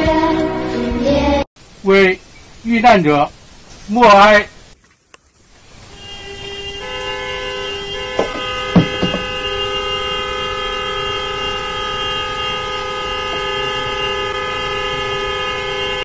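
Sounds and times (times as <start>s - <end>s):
chorus of vehicle horns: 5.8s - 16.0s.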